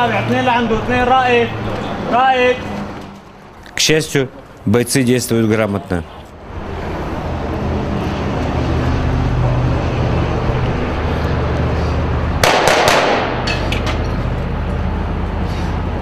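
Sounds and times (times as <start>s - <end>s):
gunfire bursts: 12.4s - 13.5s.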